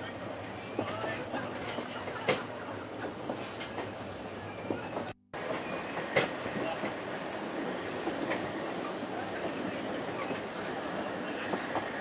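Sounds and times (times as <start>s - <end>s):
wheels rumbling on rails: 0.0s - 12.0s
rail clicks and clacks: 0.6s - 12.0s.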